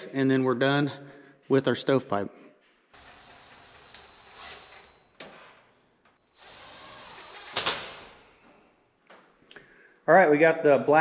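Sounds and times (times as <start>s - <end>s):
cordless drill driving screws: 3.0s - 5.6s, 6.3s - 8.4s.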